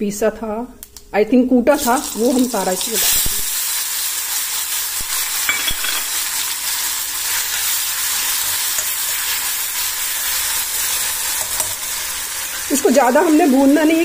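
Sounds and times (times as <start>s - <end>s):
spices sizzling in hot oil: 1.7s - 14.0s
spoon stirring in pan: 7.2s - 13.4s.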